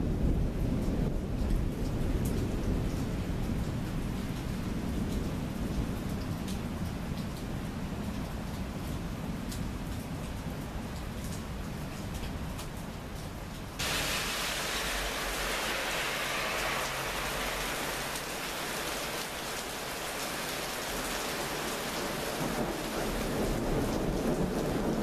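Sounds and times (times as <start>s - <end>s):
low rumble of thunder: 0.0s - 8.1s, 16.6s - 25.0s
heavy rain pouring: 0.0s - 25.0s.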